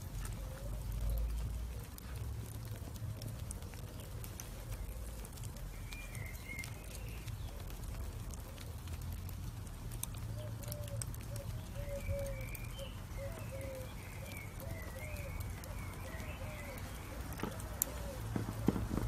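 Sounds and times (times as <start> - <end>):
charcoal crackling: 0.0 - 19.0
bird wavering call: 10.8 - 17.2.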